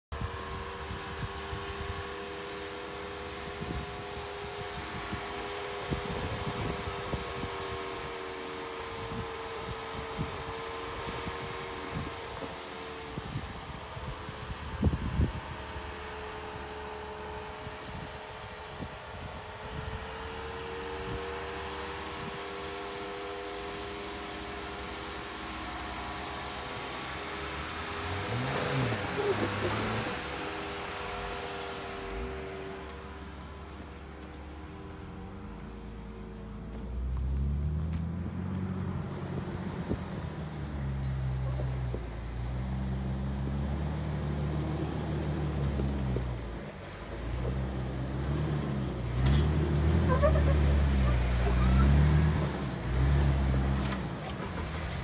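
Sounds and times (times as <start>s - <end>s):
vehicle engine whining hum: 0.0s - 55.0s
wind buffeting microphone: 3.6s - 8.2s, 8.8s - 16.0s.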